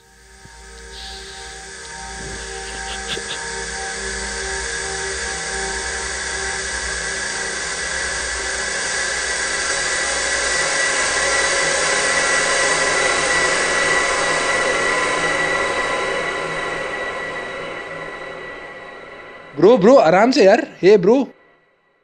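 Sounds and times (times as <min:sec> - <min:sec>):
hissing rush drone: 0:00.0 - 0:08.7
high ringing tone: 0:00.8 - 0:03.4.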